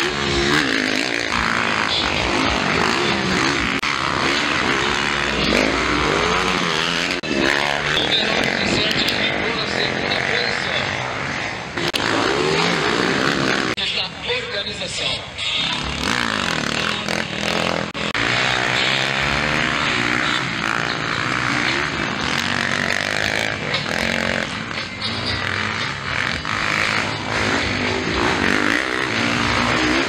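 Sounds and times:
dirt bike engines revving: 0:00.0 - 0:30.0.

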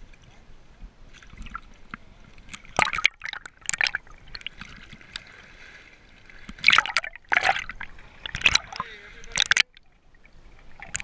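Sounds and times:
water sloshing and bubbling: 0:00.0 - 0:11.0.

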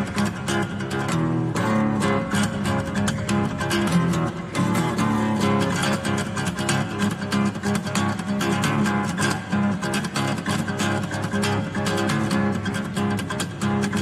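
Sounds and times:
acoustic guitar strummed fast: 0:00.0 - 0:14.0.

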